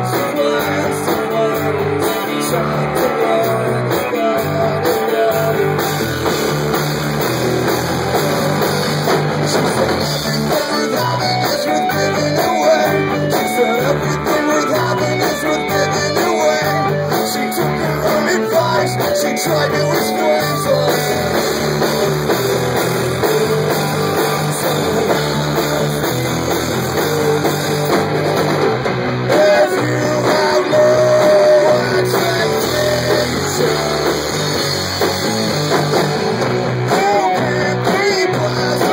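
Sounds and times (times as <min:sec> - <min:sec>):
person singing into microphone: 0:00.0 - 0:05.8, 0:09.5 - 0:22.1, 0:29.3 - 0:34.6, 0:36.8 - 0:38.9
electric guitar: 0:00.0 - 0:38.9
live rock band playing: 0:00.0 - 0:38.9.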